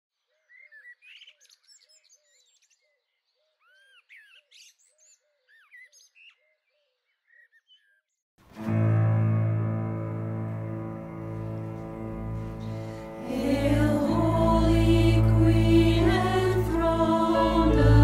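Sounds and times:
low repeating short note: 8.6 - 18.0.

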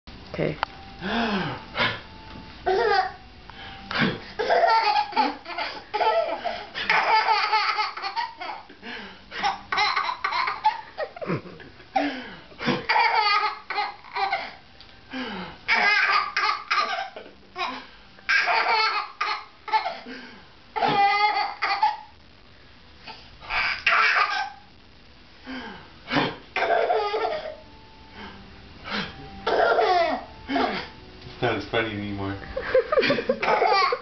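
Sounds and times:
baby laughing: 2.7 - 3.2, 4.4 - 8.7, 9.4 - 11.4, 12.0 - 14.6, 15.7 - 20.0, 20.8 - 22.1, 23.5 - 24.6, 26.6 - 27.6, 29.5 - 30.9, 33.3 - 34.0.

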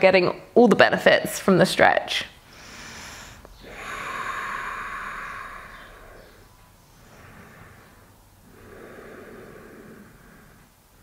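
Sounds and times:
person breathing out: 2.5 - 10.7.

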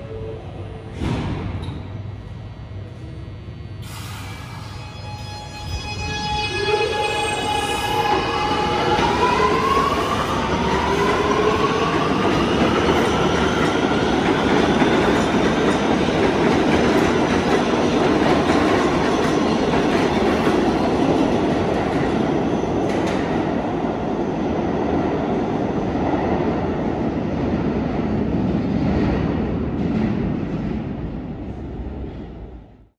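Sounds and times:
subway train motor whine: 0.0 - 25.1
train wheels rumbling on rail: 5.6 - 32.8.

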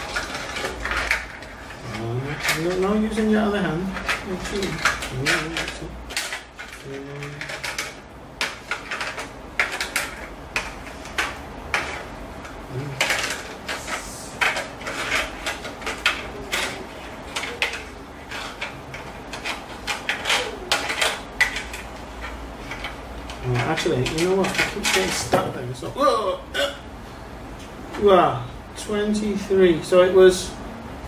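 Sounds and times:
plastic clicks and clattering: 3.9 - 25.5.

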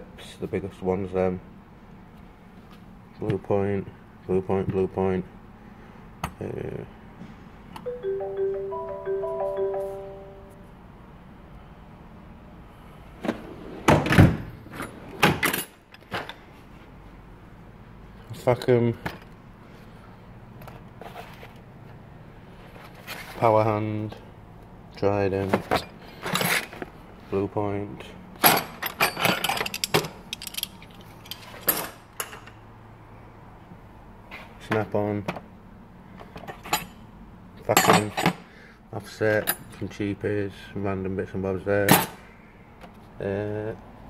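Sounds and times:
metal spanners clinking: 28.9 - 31.9.

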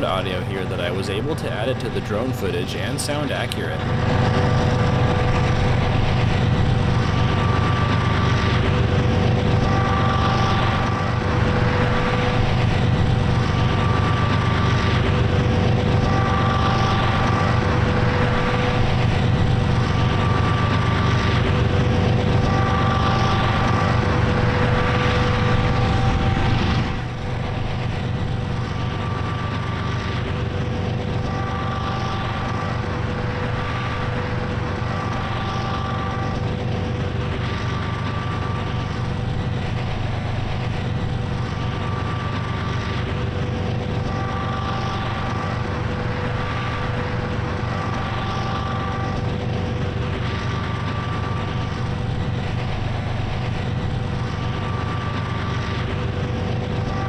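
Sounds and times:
locomotive engine drone: 0.0 - 57.0.

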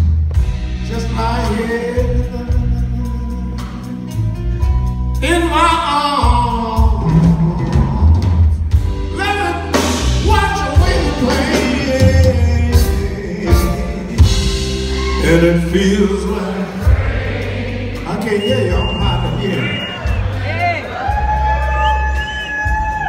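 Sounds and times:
drums: 0.0 - 23.0
electric bass: 0.0 - 23.0
man singing: 0.8 - 4.1, 5.2 - 17.4, 18.0 - 20.2.

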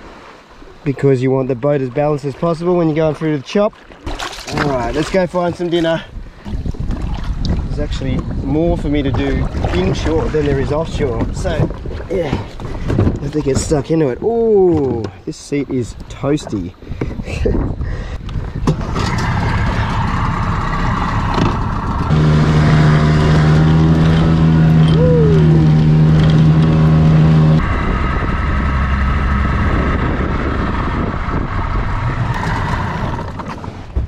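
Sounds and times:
outboard motor running: 3.8 - 15.1, 18.3 - 34.0.

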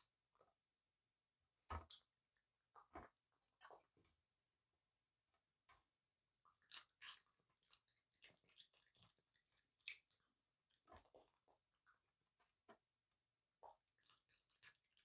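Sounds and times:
animal chewing wetly: 6.5 - 12.1, 13.7 - 15.0.

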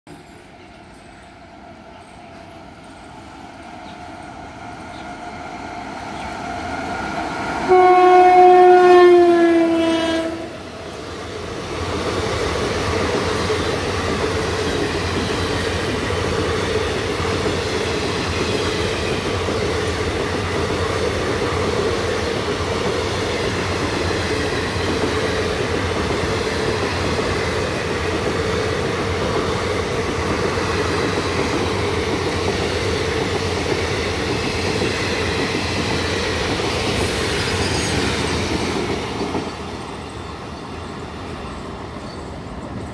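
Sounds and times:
train wheels rumbling on rails: 0.1 - 42.9
locomotive horn blast: 7.7 - 10.6.

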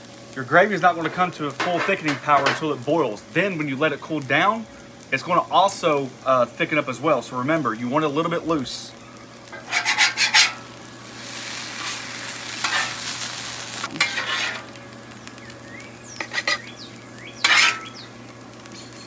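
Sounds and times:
bacon fat sizzling: 0.0 - 19.0
metal spatula scraping griddle: 0.8 - 2.8, 9.5 - 10.7, 11.4 - 13.2, 13.9 - 14.7, 16.2 - 16.7, 17.4 - 18.0.

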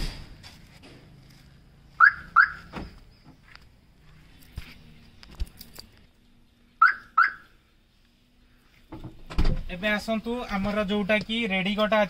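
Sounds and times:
car alarm chirping: 2.0 - 3.5, 6.8 - 7.6.

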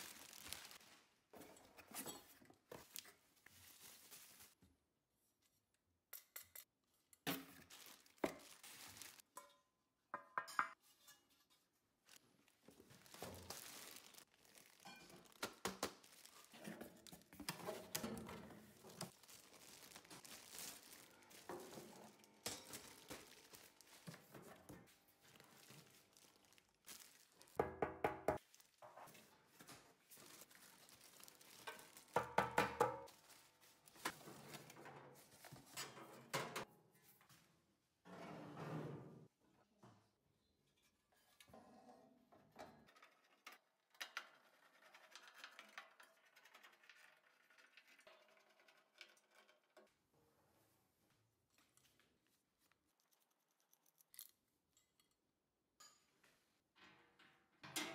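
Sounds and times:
plastic and cardboard crinkling: 0.0 - 1.3, 2.6 - 4.6, 7.5 - 9.3, 12.0 - 27.6, 28.4 - 35.4.

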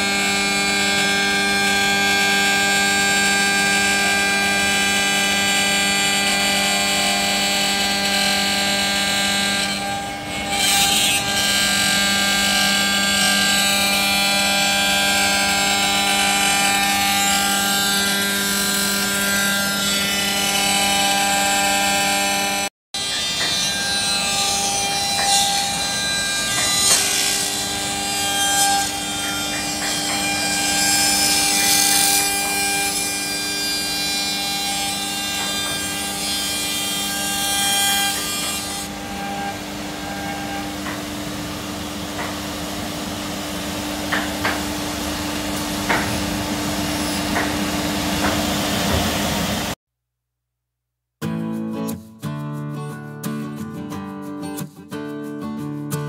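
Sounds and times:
router spindle whine: 0.0 - 38.3.

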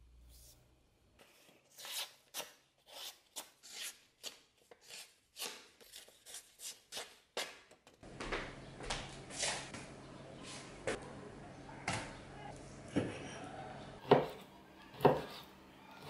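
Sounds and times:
cleaver slicing paper: 1.2 - 7.6.

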